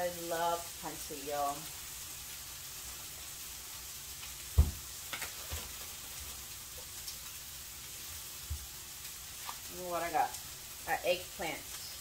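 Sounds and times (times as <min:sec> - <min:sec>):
chicken sizzling in a pan: 0:00.0 - 0:12.0
knocks: 0:04.6 - 0:04.8.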